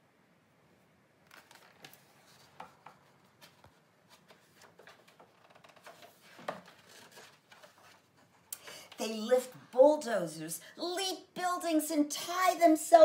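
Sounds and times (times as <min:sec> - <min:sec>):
paper pages being turned: 0:01.2 - 0:08.5.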